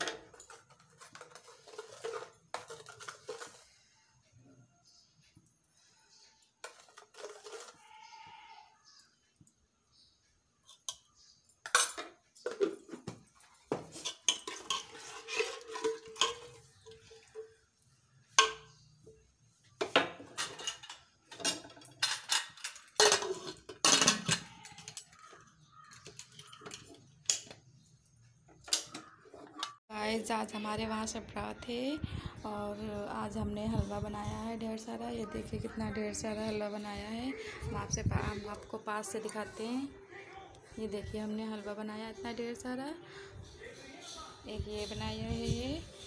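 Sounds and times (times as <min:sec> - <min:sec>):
metal ladle scraping steel pot: 0:06.6 - 0:08.2, 0:13.8 - 0:17.6.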